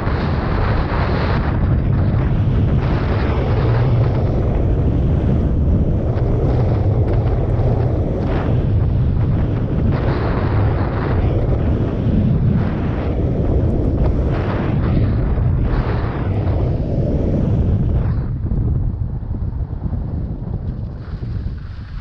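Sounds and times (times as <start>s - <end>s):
wind buffeting microphone: 0.0s - 22.0s
skis sliding over packed snow: 20.8s - 22.0s.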